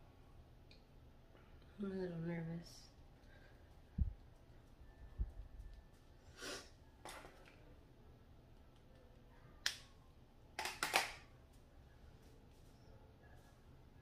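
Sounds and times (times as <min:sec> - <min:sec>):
clicks of makeup tools: 0:10.6 - 0:11.2
rustle of makeup products: 0:11.4 - 0:14.0.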